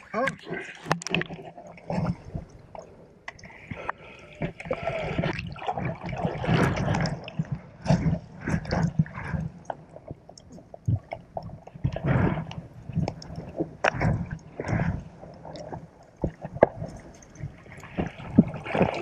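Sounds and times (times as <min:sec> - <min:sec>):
underwater gurgling and sloshing: 0:00.0 - 0:19.0
underwater clicks and knocks: 0:00.2 - 0:19.0.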